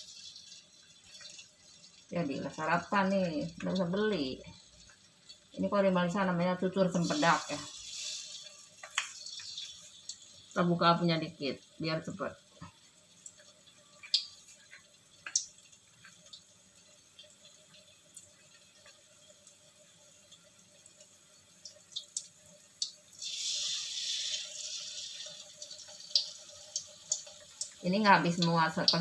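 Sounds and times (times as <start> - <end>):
fritters sizzling in oil: 0.0 - 29.0
loud hissing sizzle: 0.0 - 29.0.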